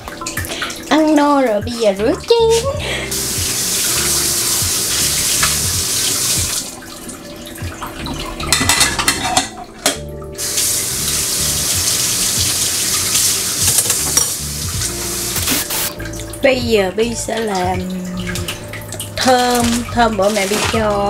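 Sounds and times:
dishes knocking: 0:08.4 - 0:10.0, 0:13.6 - 0:14.4
tap running into steel sink: 0:11.8 - 0:14.8.

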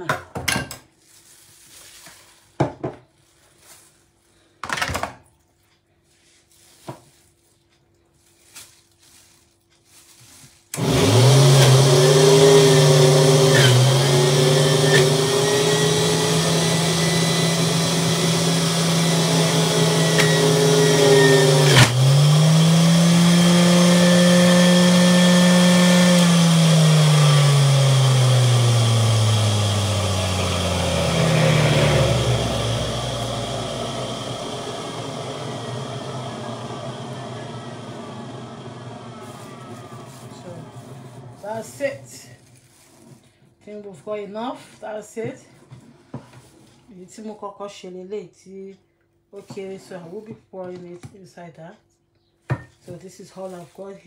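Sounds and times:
juicer motor whining: 0:10.7 - 0:42.2.

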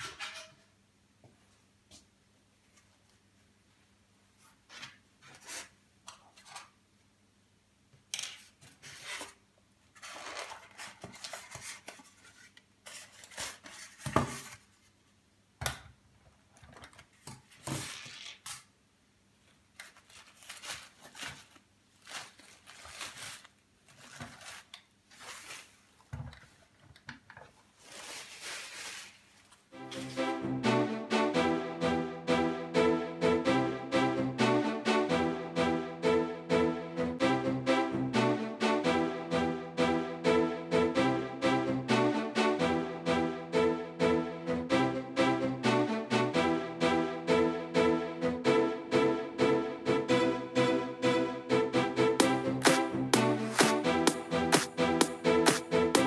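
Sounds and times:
paper and plastic wrapping rustling: 0:08.4 - 0:14.9, 0:19.7 - 0:29.7
styrofoam rubbing: 0:27.8 - 0:29.4.

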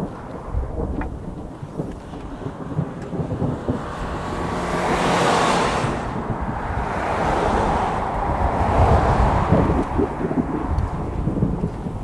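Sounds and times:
car passing: 0:00.0 - 0:12.0
wind buffeting microphone: 0:00.0 - 0:12.0.

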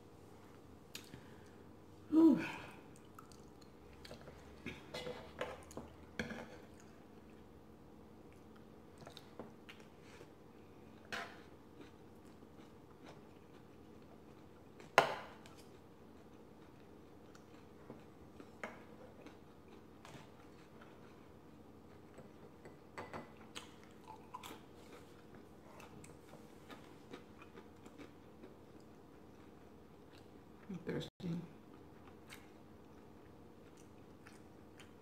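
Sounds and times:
chewing and biting: 0:23.4 - 0:30.3, 0:31.7 - 0:35.0.

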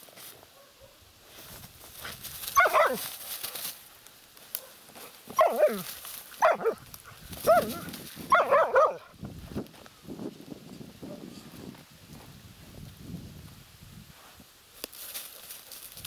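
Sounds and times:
dog barking: 0:00.5 - 0:01.0, 0:02.6 - 0:03.1, 0:04.6 - 0:06.8, 0:07.4 - 0:09.1.

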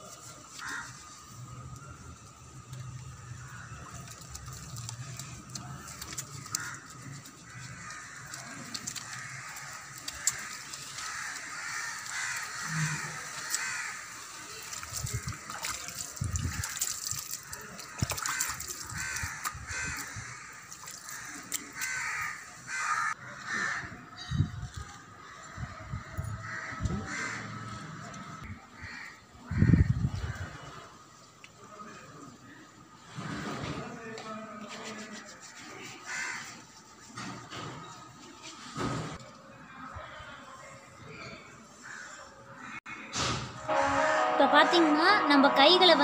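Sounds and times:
hands lathering with soap: 0:00.2 - 0:22.7, 0:34.6 - 0:37.2
crows cawing: 0:00.5 - 0:01.0, 0:03.4 - 0:24.0, 0:26.4 - 0:30.5, 0:36.0 - 0:36.6, 0:41.8 - 0:43.1
water splashing onto concrete: 0:02.7 - 0:23.1.

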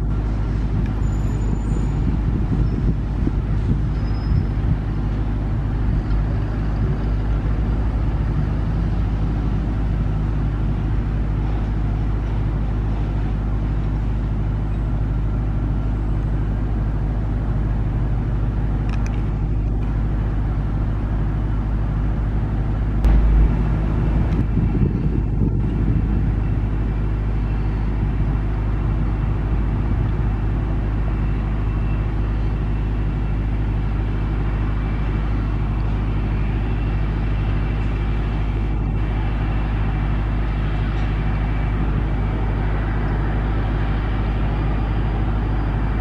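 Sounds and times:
jet engines rumbling: 0:01.9 - 0:46.0
low thump: 0:23.0 - 0:25.2.

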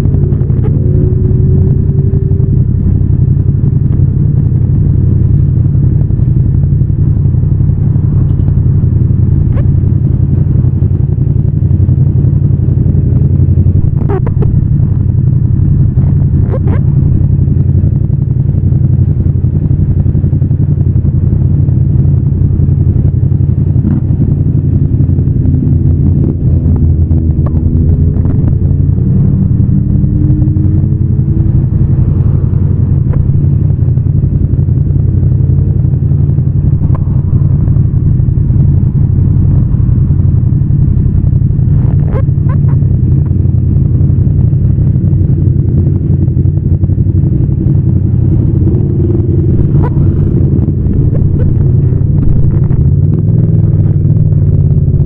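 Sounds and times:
rising tone: 0:00.0 - 0:03.0
motorcycle engine running: 0:00.0 - 0:55.0.

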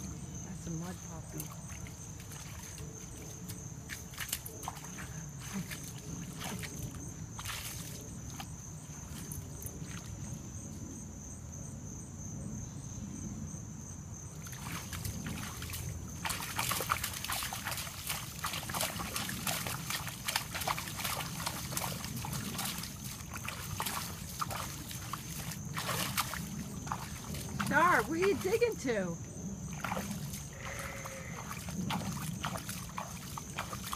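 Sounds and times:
dog digging in mud splashing: 0:01.2 - 0:10.2, 0:14.4 - 0:28.9, 0:29.6 - 0:33.9.

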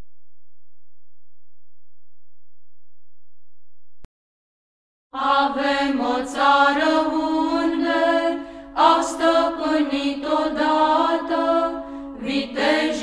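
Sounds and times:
person singing chant: 0:05.2 - 0:13.0.

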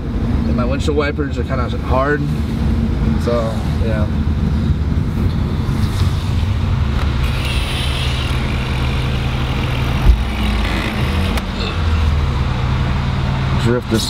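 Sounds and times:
road noise: 0:00.0 - 0:14.0
car engine running: 0:04.2 - 0:14.0.

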